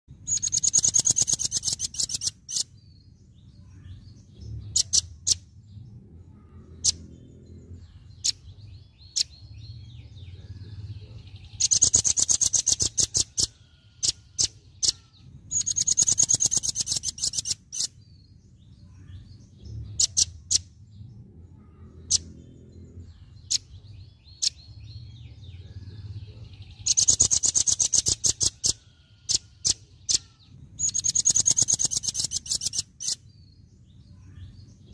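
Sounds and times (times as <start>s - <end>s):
bird rattling trill calls: 0.2s - 2.8s, 4.6s - 5.5s, 11.6s - 18.0s, 19.8s - 20.7s, 26.8s - 33.4s
faint low hum: 2.8s - 12.3s, 13.3s - 34.9s.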